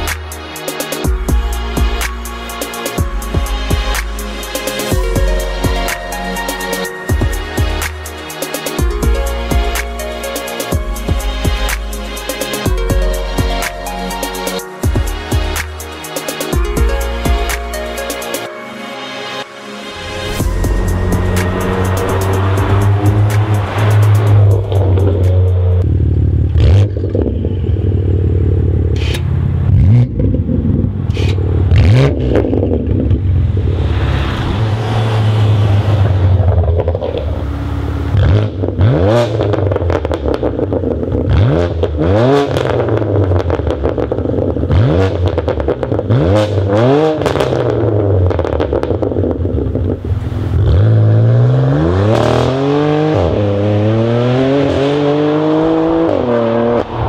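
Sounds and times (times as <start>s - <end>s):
car engine accelerating: 19.9s - 57.0s
exhaust pops: 36.0s - 37.6s.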